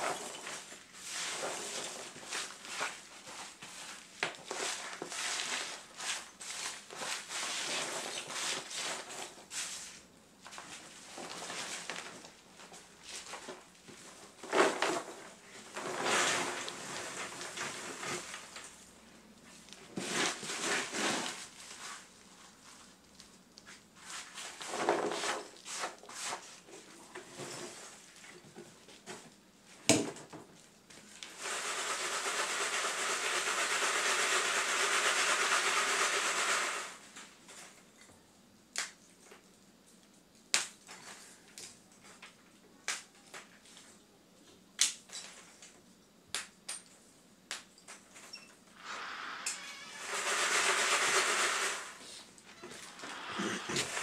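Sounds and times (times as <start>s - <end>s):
charcoal sifting through mesh: 0.0s - 18.8s, 19.5s - 26.8s, 31.0s - 37.0s, 50.0s - 54.0s.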